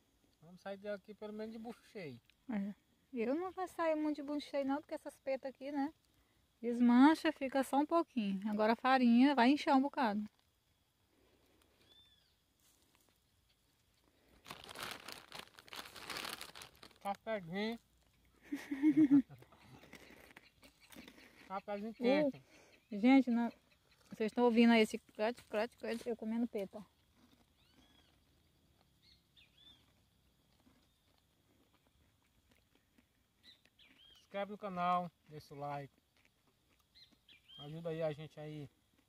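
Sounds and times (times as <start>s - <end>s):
crunchy biscuit being chewed: 11.3s - 17.1s, 17.7s - 21.6s, 25.0s - 34.4s, 35.0s - 37.6s, 38.7s - 39.0s
faint bird chirps: 11.8s - 12.5s, 18.2s - 24.7s, 27.6s - 30.0s, 33.4s - 34.4s, 36.9s - 38.0s.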